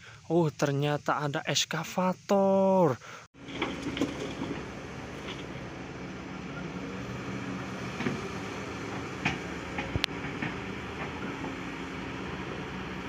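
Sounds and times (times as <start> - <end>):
excavator diesel engine running: 3.4 - 13.0.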